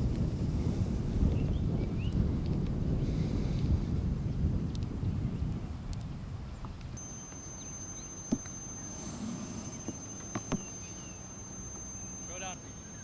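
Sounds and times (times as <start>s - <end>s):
wind rumble: 0.0s - 10.1s
high-pitched insect whine: 7.0s - 13.0s.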